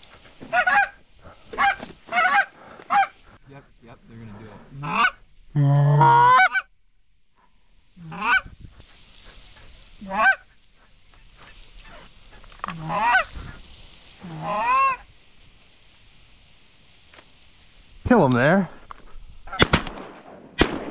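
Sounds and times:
goose call honks: 4.8 - 6.7, 8.0 - 8.5, 10.0 - 10.4, 12.7 - 13.3, 14.2 - 15.0.

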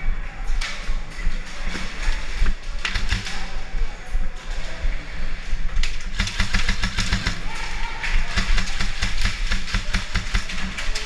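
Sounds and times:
airsoft rifle rapid fire: 2.8 - 3.7, 6.0 - 11.0.

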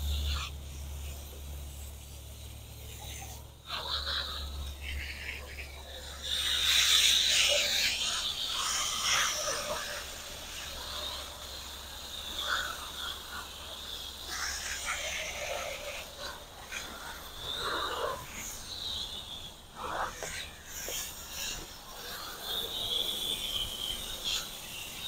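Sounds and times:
hose nozzle spraying water: 19.8 - 25.0.

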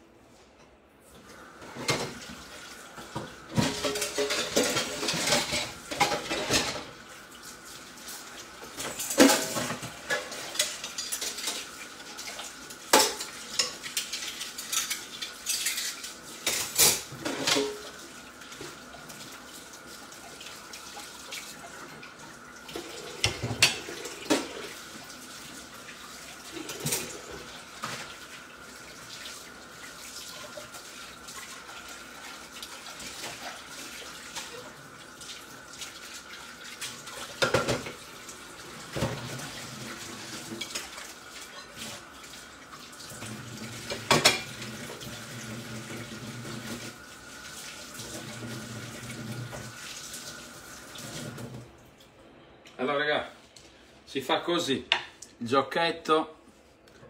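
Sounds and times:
dishes and utensils clinking: 3.2 - 7.0, 8.8 - 11.7, 12.9 - 18.0, 23.2 - 24.6, 43.8 - 44.7.

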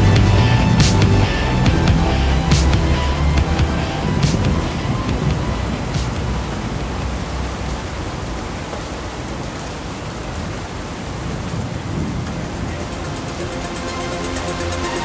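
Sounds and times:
electronic music low bass: 0.0 - 7.3, 12.6 - 15.0
rain-like noise: 0.0 - 15.0.

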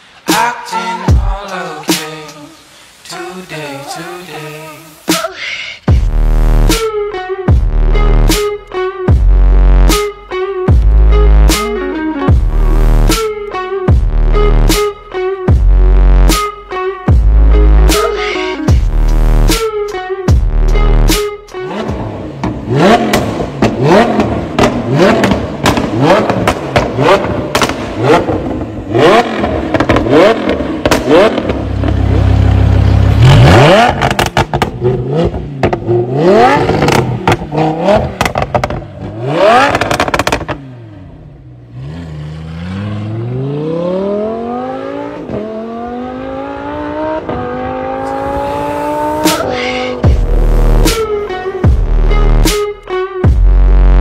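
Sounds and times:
sports car engine revving: 20.7 - 52.6
exhaust cracks and pops: 22.4 - 28.6, 29.3 - 32.2, 33.8 - 36.0, 36.7 - 40.6.

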